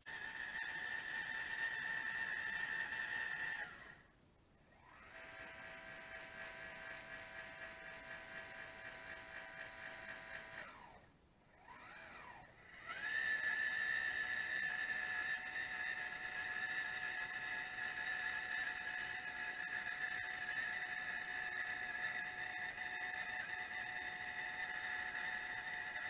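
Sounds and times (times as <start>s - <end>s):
telescope motors whining: 0.1s - 4.1s, 4.7s - 26.0s.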